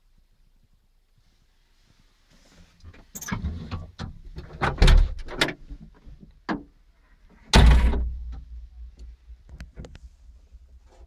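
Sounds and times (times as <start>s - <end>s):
cab door knocks and rattles: 3.9s - 5.7s
door banging shut: 4.5s - 5.6s, 7.5s - 8.3s.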